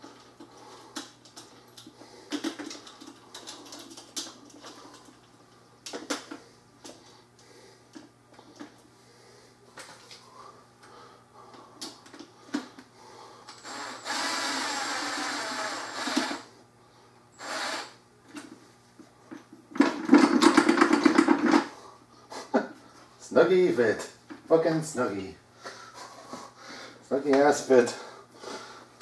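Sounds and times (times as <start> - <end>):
cordless drill driving screw: 13.5 - 16.5, 17.4 - 18.0
drill clutch rapid clicking: 13.5 - 16.5, 17.4 - 18.0.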